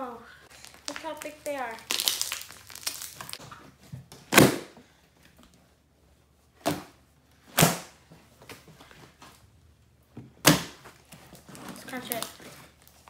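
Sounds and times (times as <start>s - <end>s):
slime kneading crackles: 0.3s - 3.4s, 11.0s - 13.0s
air pockets popping in slime: 0.5s - 3.4s.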